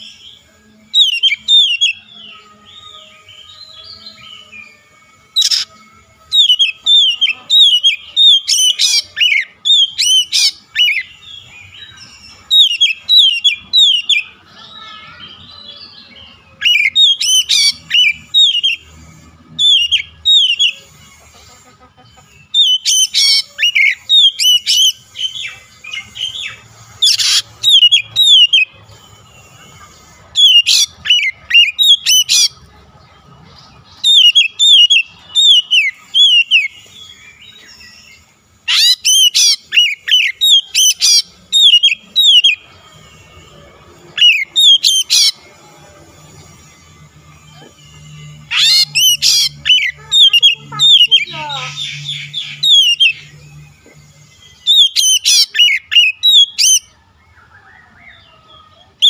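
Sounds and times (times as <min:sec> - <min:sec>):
bird singing whistled notes: 0:00.0 - 0:21.2, 0:22.4 - 0:32.7, 0:33.8 - 0:58.7.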